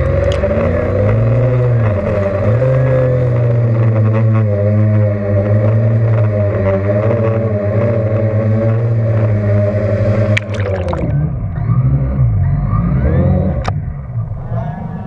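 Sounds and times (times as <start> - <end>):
splash into water: 10.3 - 11.3.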